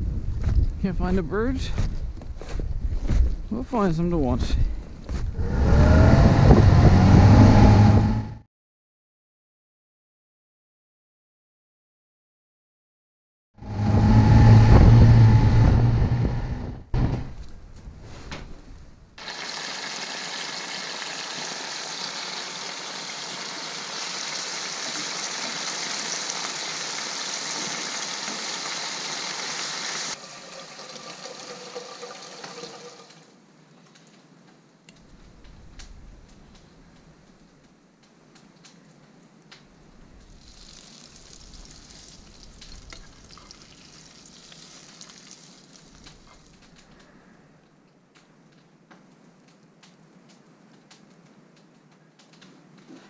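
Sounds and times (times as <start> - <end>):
loud low-pitched sound: 13.6 - 17.5
potatoes sizzling in oil: 19.2 - 33.2, 40.3 - 46.6.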